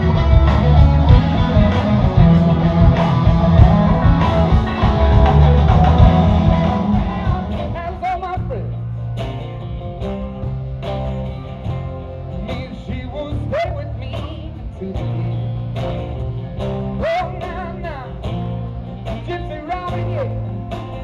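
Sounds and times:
drum kit: 0.0 - 21.0
electric and acoustic guitars: 0.0 - 21.0
person singing: 3.6 - 8.5.

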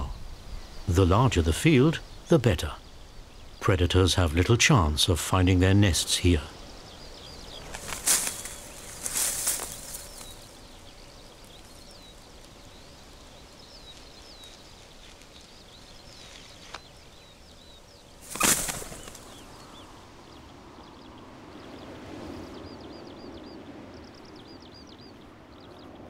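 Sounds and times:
faint outdoor hiss: 0.0 - 26.0
small birds chirping: 0.0 - 26.0
whoosh of wingbeats: 18.2 - 19.6.

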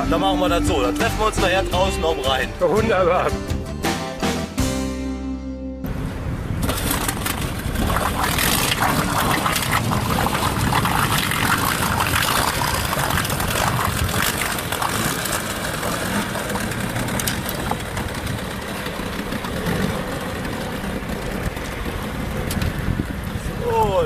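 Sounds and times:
water noise: 5.9 - 24.0
wind noise: 5.9 - 24.0
outboard motor running: 6.6 - 23.6.

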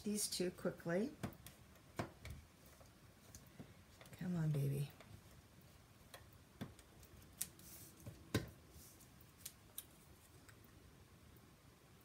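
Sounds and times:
faint clicks of handled paper: 6.1 - 8.2.

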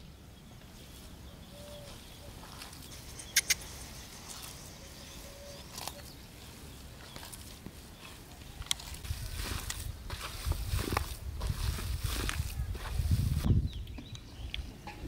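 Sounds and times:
sharp clicks: 2.9 - 3.8.

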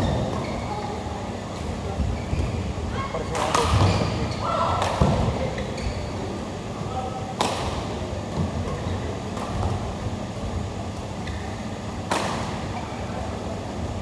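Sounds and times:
racket hitting shuttlecock: 7.4 - 7.8, 12.1 - 12.6.

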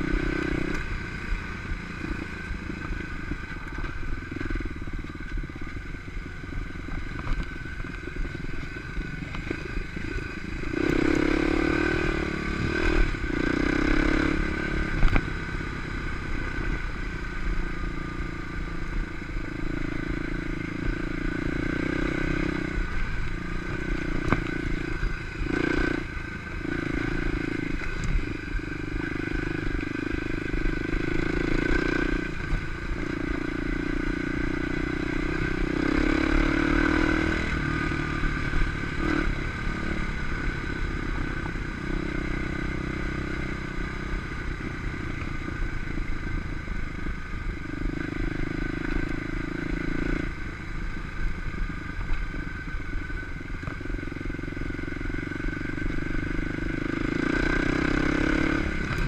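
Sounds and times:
dirt bike engine revving: 9.2 - 15.3, 19.6 - 45.6, 54.6 - 59.0.

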